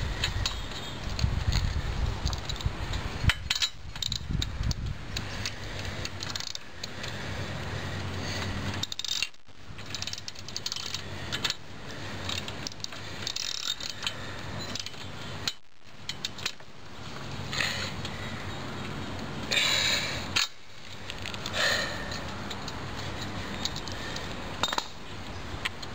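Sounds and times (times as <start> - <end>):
metal tools clinking: 3.2 - 4.2, 8.7 - 11.6, 12.2 - 16.7, 21.2 - 25.0.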